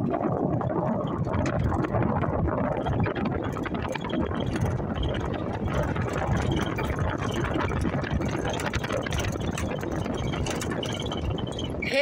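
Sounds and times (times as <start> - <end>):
vehicle body rattling: 1.1 - 11.8
vehicle engine running: 2.7 - 11.9.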